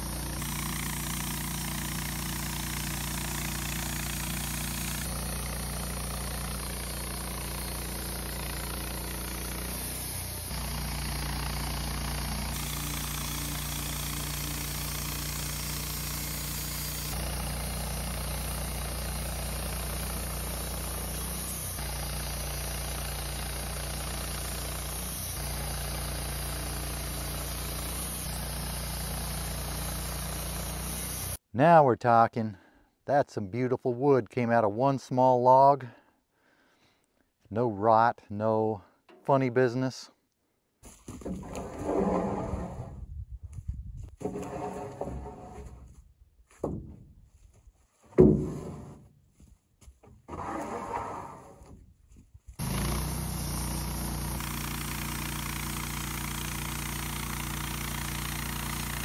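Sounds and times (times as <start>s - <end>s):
band sawmill cutting log: 0.0s - 31.4s, 41.1s - 43.0s, 44.2s - 46.0s, 48.2s - 49.1s, 50.0s - 51.8s, 52.6s - 59.0s.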